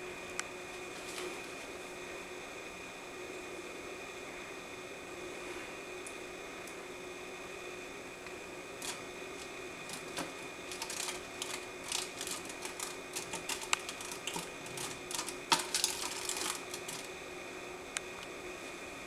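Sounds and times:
moth wings tapping on glass: 8.8s - 17.1s.

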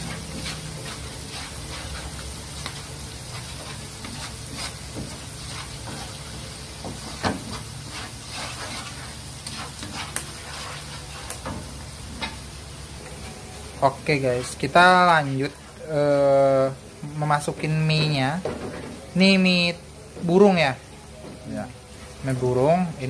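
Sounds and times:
wooden spatula scraping pan: 0.0s - 12.4s, 14.2s - 15.8s
beans sizzling in oil: 0.0s - 23.0s.

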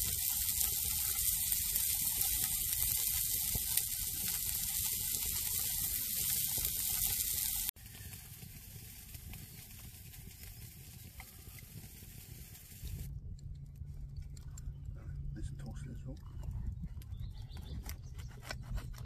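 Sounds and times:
food sizzling in a pan: 0.0s - 13.1s.

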